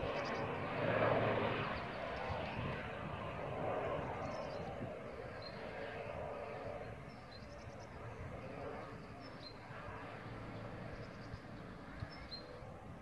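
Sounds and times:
distant helicopter rotor: 0.0 - 13.0
small birds chirping: 8.8 - 12.6.

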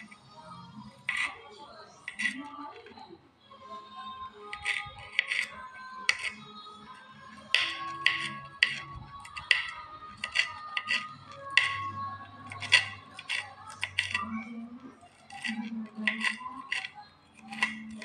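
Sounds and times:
knife clicking on cutting: 7.5 - 11.9, 12.5 - 14.2, 15.3 - 18.0.

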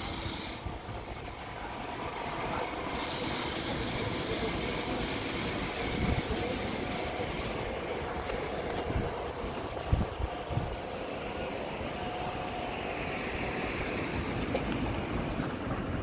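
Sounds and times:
road traffic noise: 0.0 - 16.0.

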